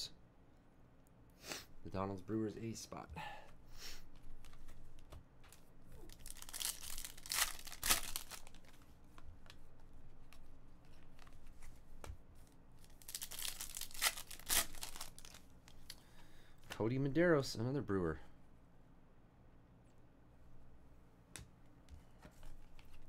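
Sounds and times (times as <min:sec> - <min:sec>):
plastic wrappers tearing and crinkling: 0:06.0 - 0:08.8, 0:12.8 - 0:16.0.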